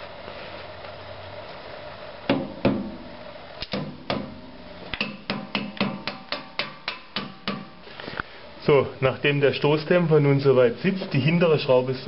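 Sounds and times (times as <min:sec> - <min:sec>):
mallet tapping metal bolt: 0:03.6 - 0:07.7.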